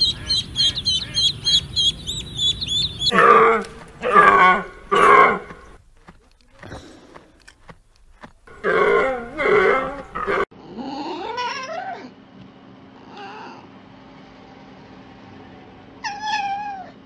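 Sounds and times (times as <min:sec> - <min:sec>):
fox whining calls: 0:00.0 - 0:05.8
deer deep calls: 0:02.7 - 0:10.5.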